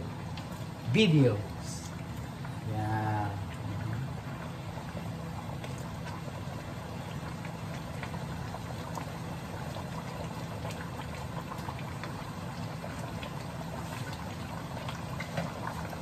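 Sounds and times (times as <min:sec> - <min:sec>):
stew simmering and bubbling: 0:00.0 - 0:16.0.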